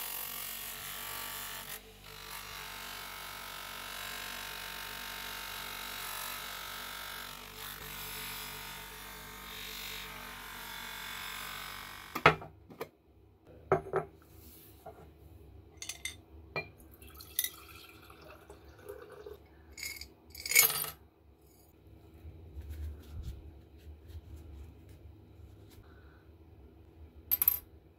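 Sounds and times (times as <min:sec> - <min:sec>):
metal parts clattering: 0:15.8 - 0:16.2, 0:19.8 - 0:21.6
glass jar clinking on table: 0:15.8 - 0:17.8.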